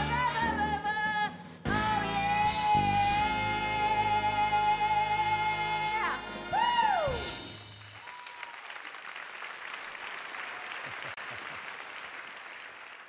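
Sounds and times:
audience applauding: 7.8 - 13.0.

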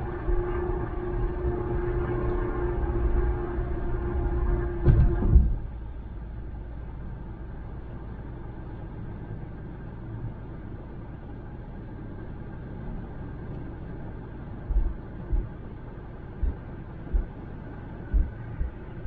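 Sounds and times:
tyre and road noise: 12.7 - 19.0.

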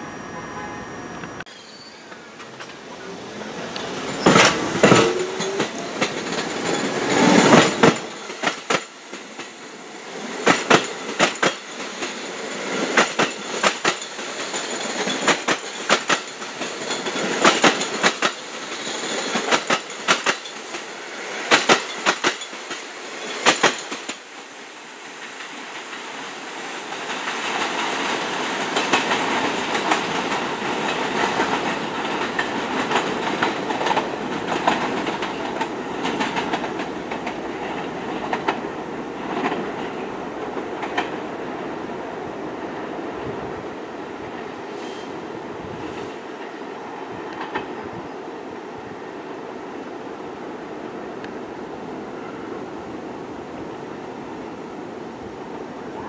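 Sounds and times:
approaching train rumble: 0.0 - 56.0
train wheels clacking: 3.7 - 24.3, 26.8 - 41.2.

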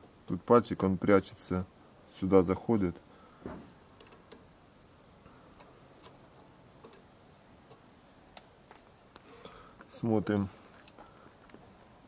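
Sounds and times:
small metal parts clicking: 10.3 - 11.2.

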